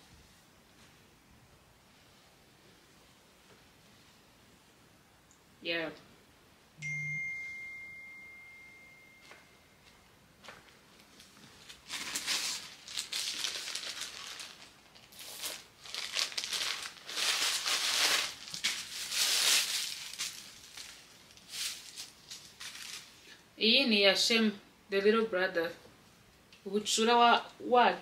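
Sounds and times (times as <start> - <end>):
plastic bag crinkling: 11.0 - 23.4.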